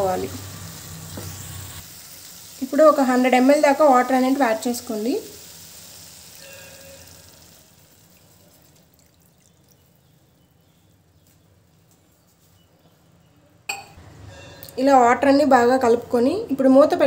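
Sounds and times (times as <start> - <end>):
water poured into hot pan: 0.1 - 10.2.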